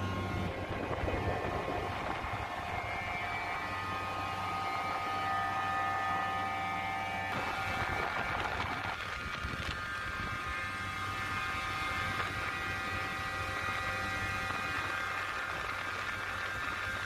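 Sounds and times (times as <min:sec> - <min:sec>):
chiller mechanical hum: 0:00.0 - 0:17.0.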